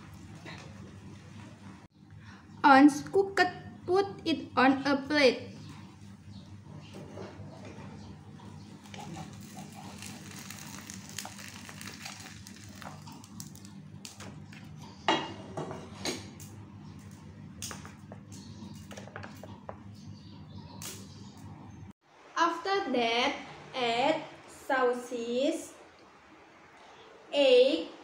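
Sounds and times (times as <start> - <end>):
steady low hum: 0.0 - 22.4.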